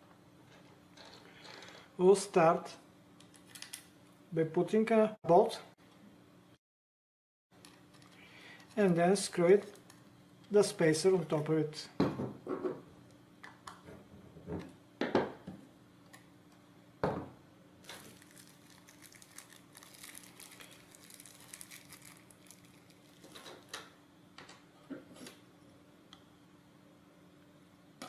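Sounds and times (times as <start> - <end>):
small parts crinkling and rustling: 7.6 - 10.0, 17.8 - 23.9.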